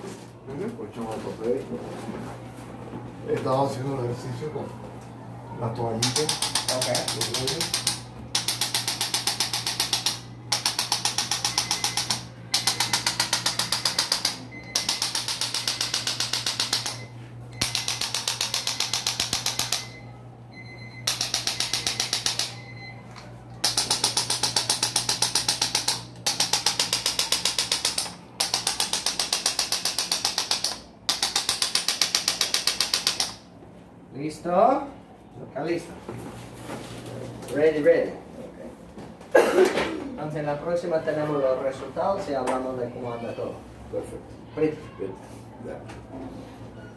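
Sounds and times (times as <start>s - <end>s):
rapid mechanical taps: 6.0s - 17.0s, 17.6s - 20.0s, 21.0s - 22.6s, 23.6s - 33.4s.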